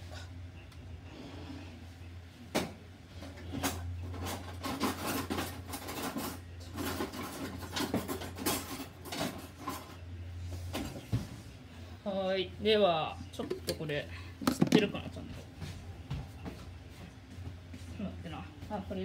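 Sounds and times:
steady low hum: 0.0s - 19.0s
kitchen things scraping and clattering: 3.2s - 10.0s, 13.4s - 15.0s.

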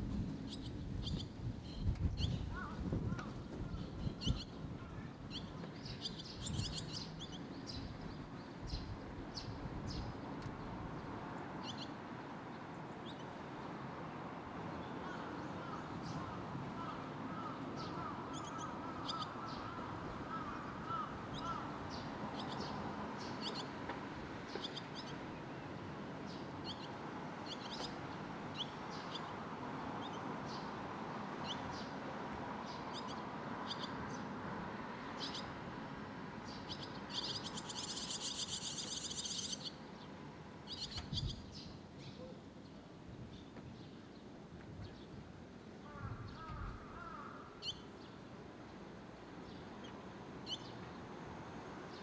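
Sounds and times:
swallow chicks chirping: 36.6s - 39.8s.

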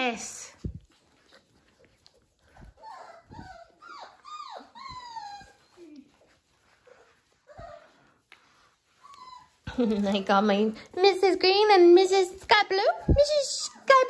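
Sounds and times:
puppies whimpering: 1.1s - 10.0s.

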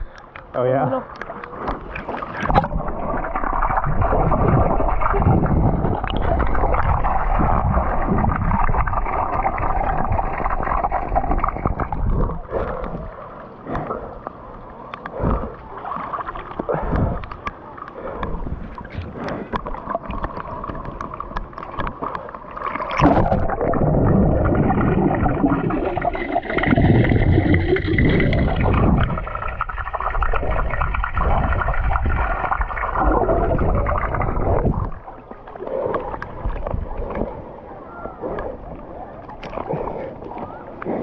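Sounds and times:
muffled underwater rumble and gurgling: 0.0s - 41.0s
water lapping against a camera: 0.0s - 41.0s.

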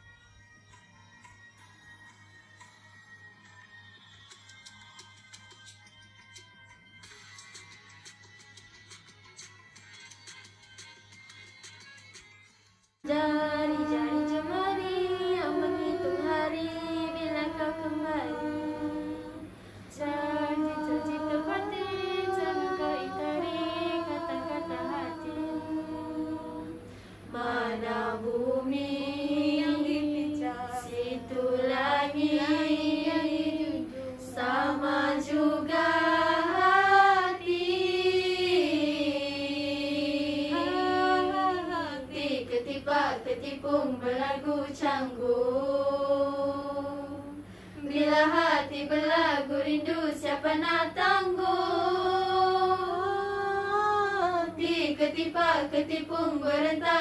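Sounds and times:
women singing in harmony: 13.1s - 57.0s.

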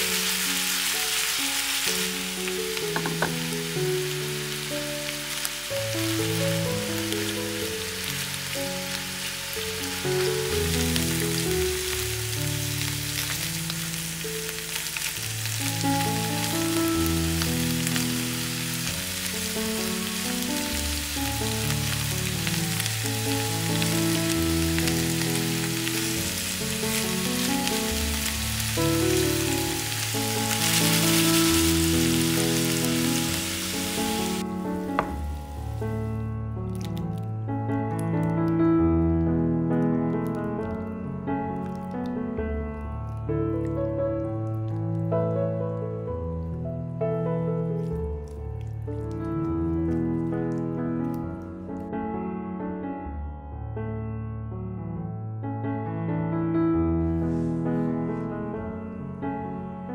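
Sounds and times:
vegetables sizzling in oil: 0.0s - 36.0s
soft background music: 0.0s - 53.3s.

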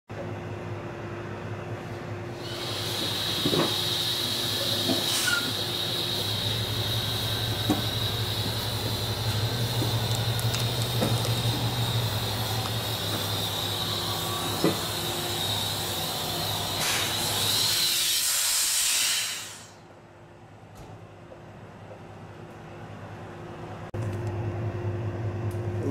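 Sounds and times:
steady high whine: 0.2s - 18.0s
truck diesel engine running: 2.6s - 17.5s.

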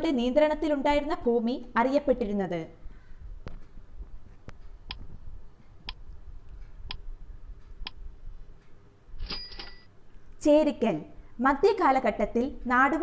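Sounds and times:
timer ticks: 3.4s - 9.1s.

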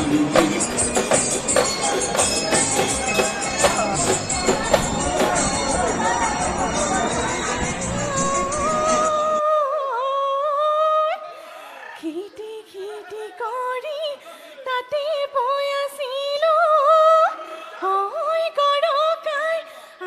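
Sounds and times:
woman singing unaccompanied: 7.5s - 11.4s, 12.0s - 20.0s.

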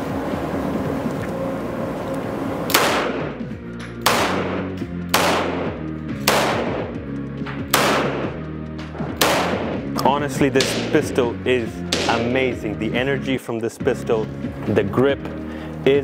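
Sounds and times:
pistol shots: 2.7s - 3.4s, 4.0s - 7.0s, 7.6s - 8.4s, 9.1s - 9.8s, 10.6s - 11.1s, 11.9s - 12.4s
indoor range echo: 2.7s - 13.3s.

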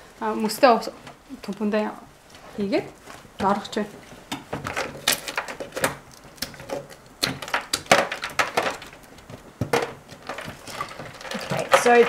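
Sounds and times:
ice cubes knocking together: 7.2s - 9.0s.

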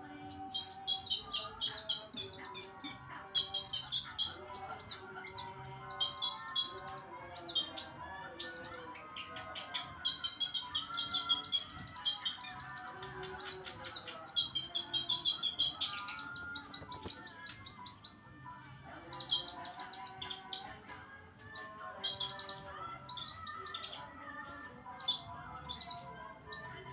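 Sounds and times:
sunbird singing trills and chirps: 13.4s - 18.1s.

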